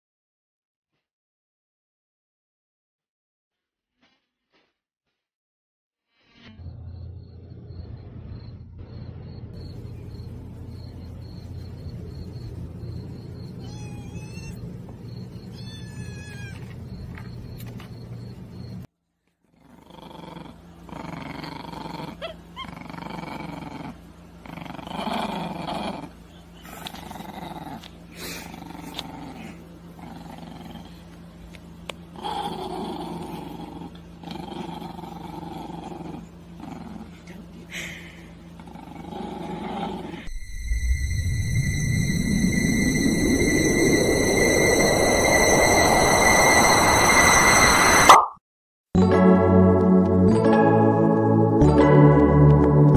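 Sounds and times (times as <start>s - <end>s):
small dog growling and snarling: 19.4s - 31.2s, 32.1s - 40.3s
low rumble: 40.3s - 48.1s.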